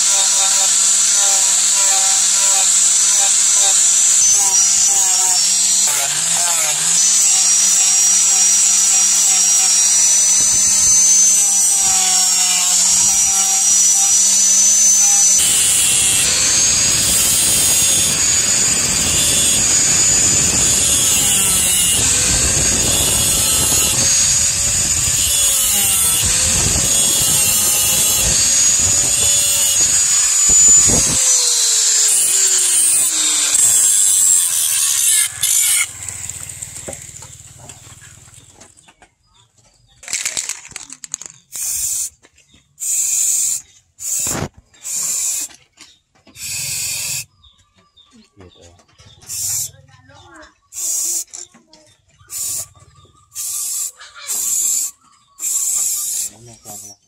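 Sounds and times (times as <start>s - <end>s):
angle grinder running: 0.0s - 38.8s, 42.8s - 45.5s, 46.3s - 47.3s, 49.1s - 49.8s, 50.7s - 51.5s, 52.2s - 57.0s
grinder disc spinning down: 0.0s - 38.8s.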